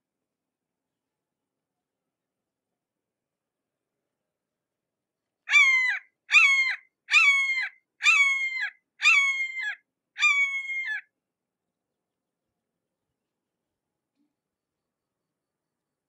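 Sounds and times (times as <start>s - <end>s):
hawk calling: 5.5s - 11.0s.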